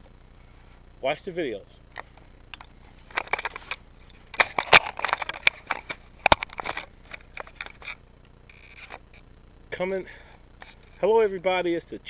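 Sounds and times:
camera handling clicks and knocks: 2.0 - 9.2.

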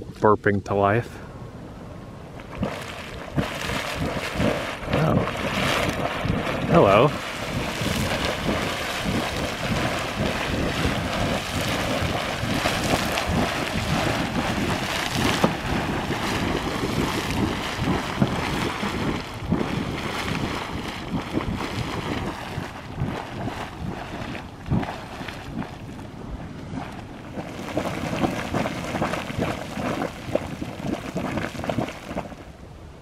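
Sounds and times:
wind buffeting microphone: 0.9 - 33.0
geyser water spurting and splashing: 2.4 - 32.5.

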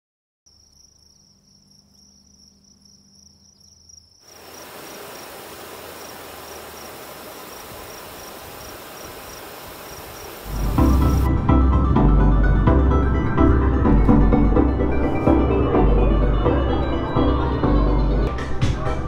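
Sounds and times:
crickets chirping: 0.5 - 11.3
steady hiss: 4.2 - 11.3.

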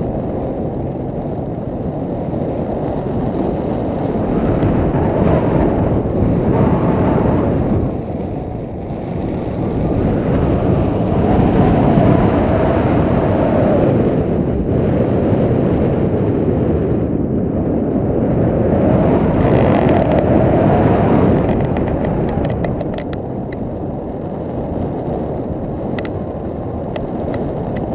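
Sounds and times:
wind rumbling over camera: 0.0 - 27.9.

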